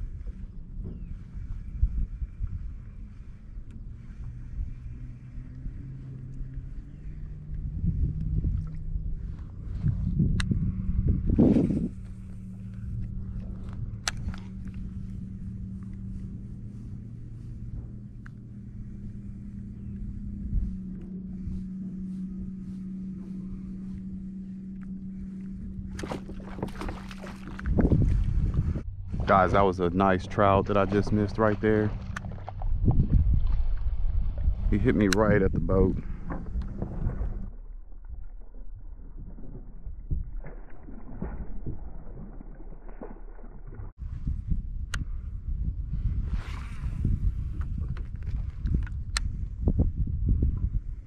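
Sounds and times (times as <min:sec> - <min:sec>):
water sloshing against kayak hull: 0:00.0 - 0:44.0
steady low hum: 0:00.0 - 0:51.0
water splashing: 0:24.9 - 0:28.5, 0:29.5 - 0:34.8, 0:36.1 - 0:43.9.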